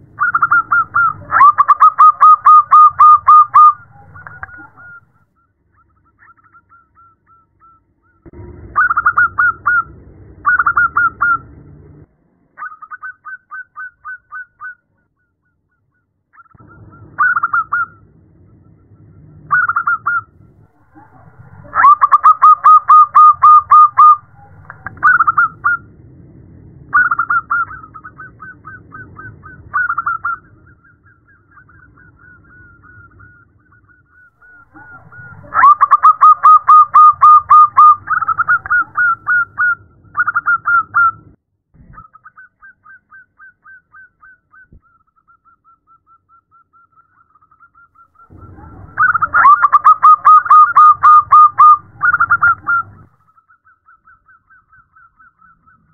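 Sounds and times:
dove cooing in staccato notes: 0.0 - 5.0, 19.5 - 25.8, 34.4 - 41.2, 48.2 - 55.9.

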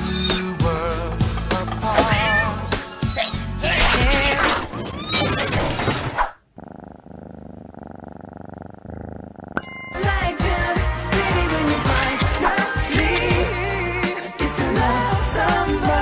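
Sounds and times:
cats meowing: 0.0 - 0.6, 1.8 - 3.5, 4.6 - 6.0
background pop music: 0.0 - 4.4, 9.9 - 16.0.

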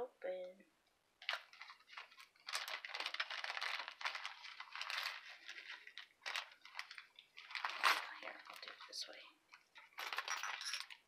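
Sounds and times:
plastic bag crinkling: 1.2 - 11.0
small metal gears clinking: 10.0 - 11.0.

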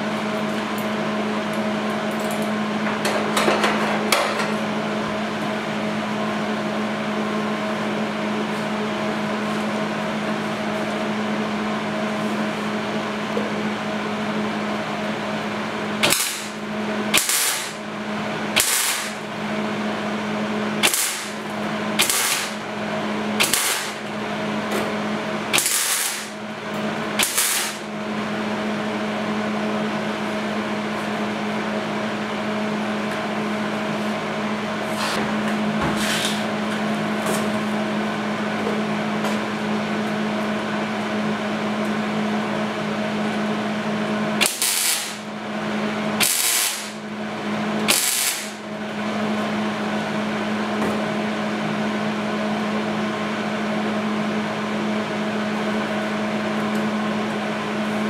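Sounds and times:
welder hum: 14.2 - 38.4, 43.2 - 50.8
welding crackle: 18.6 - 19.2, 20.8 - 21.4, 22.0 - 22.6, 23.4 - 24.0, 25.5 - 26.4, 27.2 - 27.8, 44.4 - 45.2, 46.2 - 47.0, 47.9 - 48.6.

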